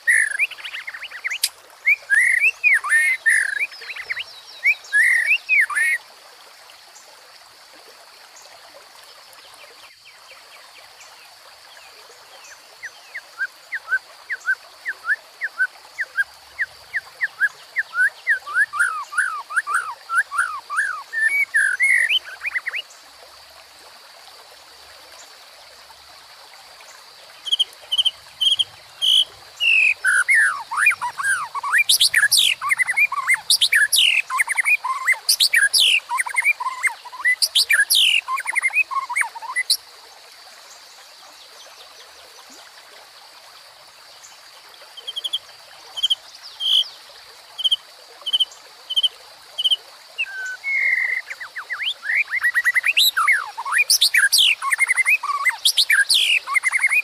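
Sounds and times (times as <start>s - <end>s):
forest stream rushing: 0.0s - 57.0s
bird singing whistles: 48.9s - 57.0s.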